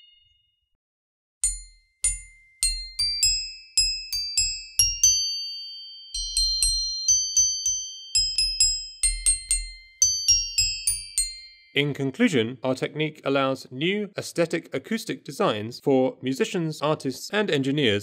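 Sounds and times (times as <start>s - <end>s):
metallophone melody: 1.4s - 12.0s.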